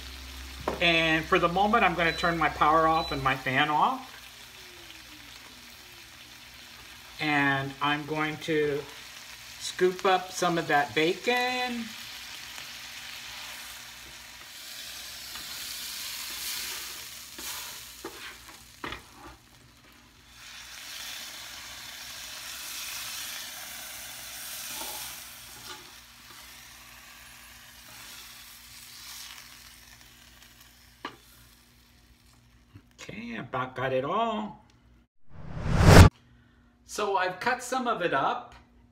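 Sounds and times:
bacon sizzling on a griddle: 0.0s - 32.7s
spatula scraping a griddle: 13.2s - 21.3s, 24.4s - 29.6s.

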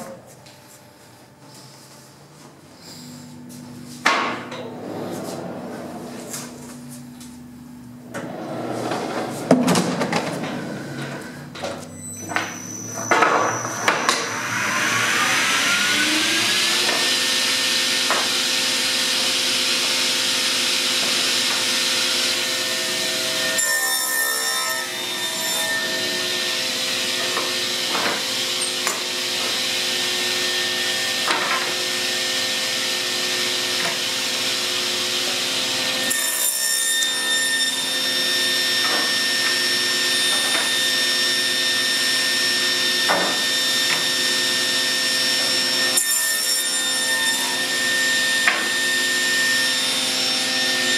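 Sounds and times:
table saw whining: 8.1s - 50.9s
saw cutting wood: 12.4s - 50.9s.

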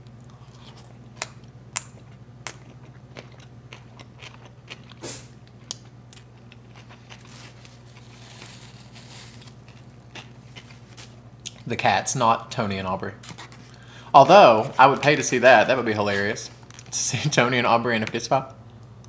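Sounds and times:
chewing with wet mouth clicks: 0.0s - 7.3s.

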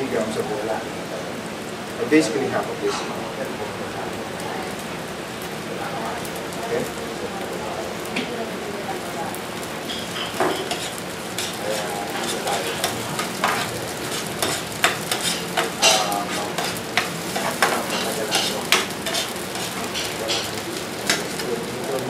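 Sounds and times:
sauce sizzling in frying pan: 0.0s - 22.0s
metal spoon scraping pan: 9.9s - 21.4s.

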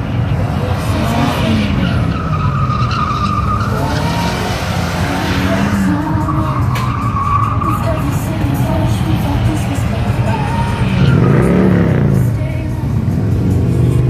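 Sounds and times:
engine revving: 0.0s - 2.6s, 3.3s - 14.0s
tyre squealing: 1.2s - 4.6s, 10.2s - 12.2s.

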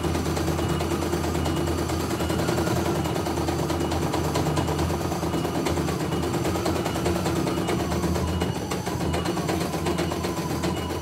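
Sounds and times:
motor hum: 0.0s - 11.0s.

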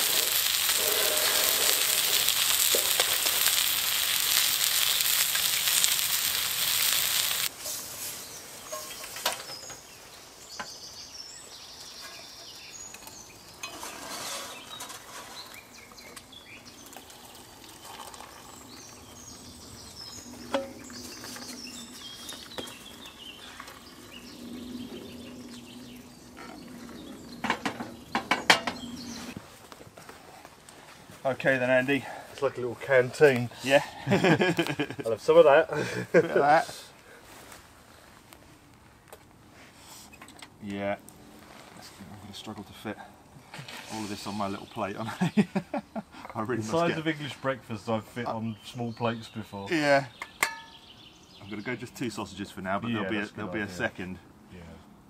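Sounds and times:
eggs sizzling in a skillet: 0.0s - 9.2s, 12.9s - 26.2s
water pouring into a mug: 16.8s - 19.2s.

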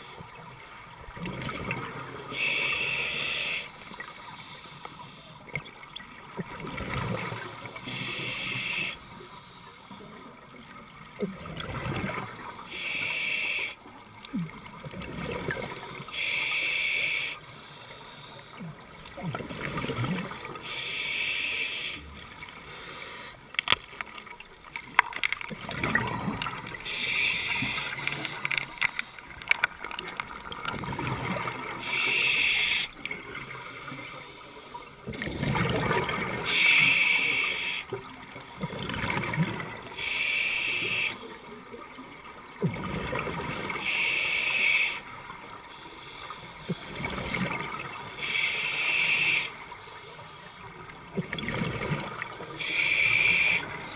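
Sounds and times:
exhaled bubbles gurgling: 1.1s - 3.5s, 14.3s - 16.1s, 25.5s - 28.4s, 35.0s - 36.8s, 51.1s - 53.9s
regulator inhalation hiss: 2.3s - 5.4s, 7.7s - 9.7s, 12.7s - 13.8s, 16.1s - 18.6s, 20.6s - 23.4s, 26.8s - 28.5s, 31.8s - 32.9s, 36.4s - 38.0s, 40.0s - 41.3s, 43.8s - 45.0s, 48.0s - 50.6s, 52.6s - 53.9s.

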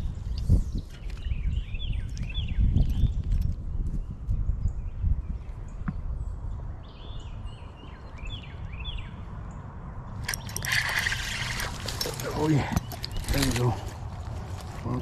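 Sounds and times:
wind rumbling on microphone: 0.0s - 15.0s
fish splashing in water: 10.2s - 12.4s.

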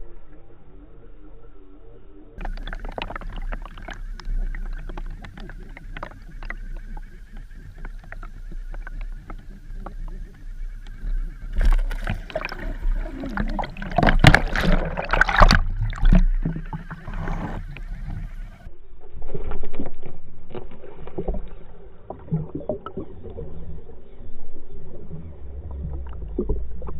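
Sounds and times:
underwater water noise: 0.0s - 26.9s
water churning and knocking: 2.4s - 10.3s, 11.5s - 18.6s
underwater clicks and knocks: 2.4s - 18.7s.

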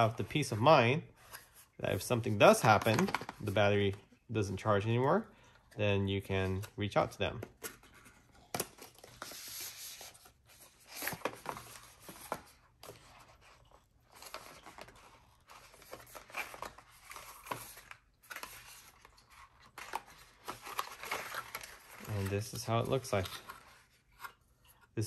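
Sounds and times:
cardboard scraping and rustling: 7.6s - 24.3s.

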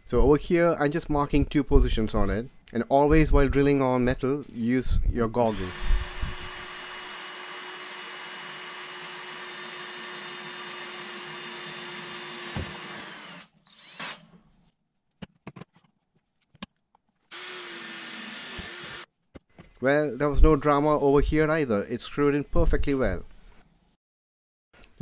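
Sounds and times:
cordless drill boring into pipe: 5.5s - 14.2s, 17.3s - 19.1s.

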